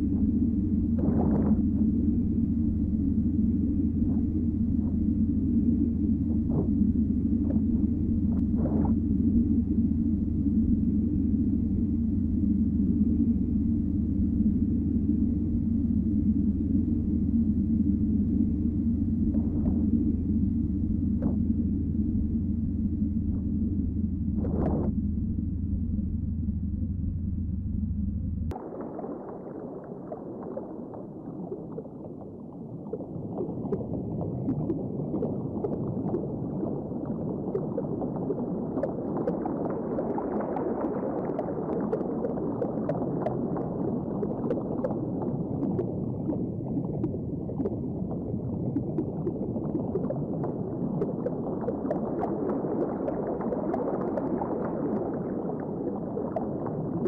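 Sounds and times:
underwater gurgling and bubbling: 0.0s - 26.0s, 28.5s - 57.0s.

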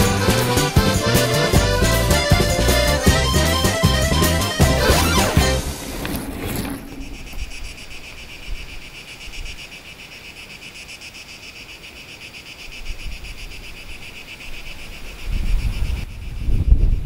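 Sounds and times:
music: 0.0s - 5.9s
insects chirping: 5.6s - 17.0s.

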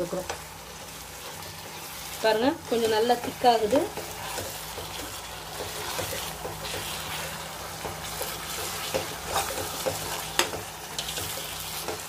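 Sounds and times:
low sizzle: 0.0s - 12.0s
spoon scraping pan: 1.2s - 12.0s.

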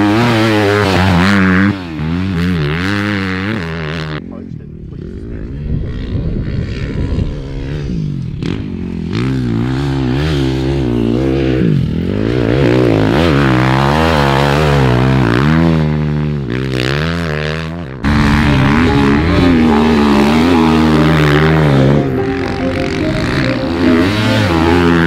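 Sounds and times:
dirt bike engines revving: 0.0s - 25.0s.

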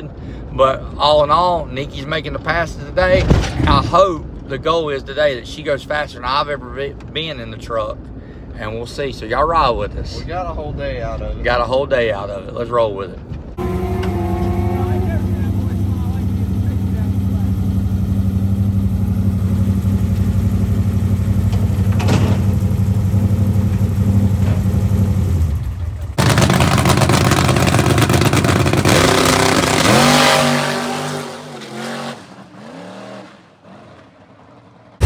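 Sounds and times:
vehicle engine droning: 13.1s - 35.0s
loud engine passing by: 13.6s - 21.5s.

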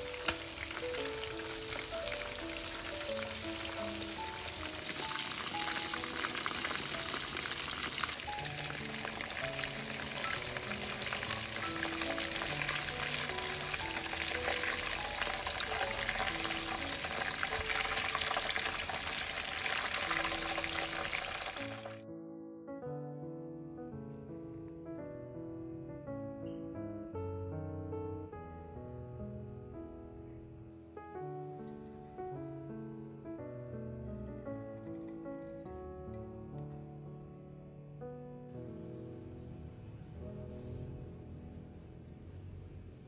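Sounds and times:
chicken deep-frying in oil: 0.0s - 22.0s
soft background music: 0.0s - 43.0s.

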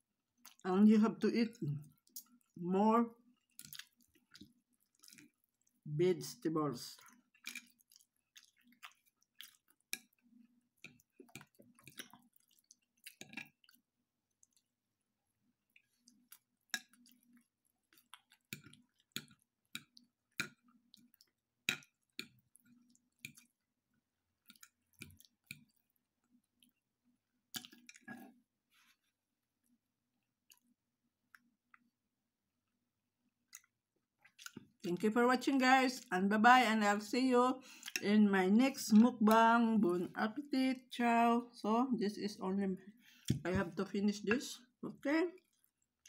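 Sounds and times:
faint chewing: 0.3s - 0.6s, 1.6s - 2.6s, 3.2s - 5.9s, 7.0s - 14.8s, 15.6s - 31.9s, 33.4s - 34.9s, 37.7s - 38.1s, 45.4s - 46.0s.

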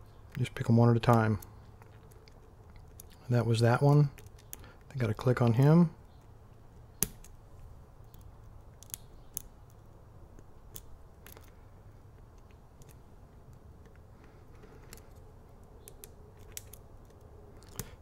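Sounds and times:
lock pick clicking and scraping: 1.0s - 3.2s, 3.8s - 5.0s, 8.0s - 18.0s.

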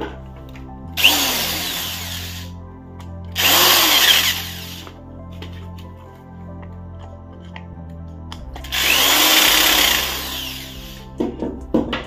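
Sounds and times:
cordless drill driving screws: 1.0s - 2.5s, 3.4s - 4.9s, 8.6s - 11.0s.

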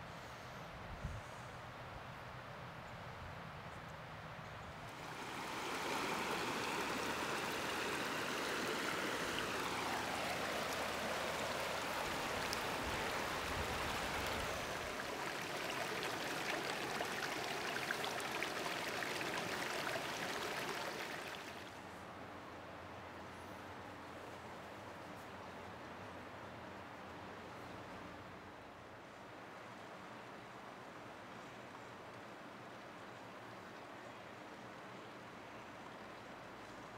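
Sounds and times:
stream splashing between boulders: 4.9s - 21.8s.

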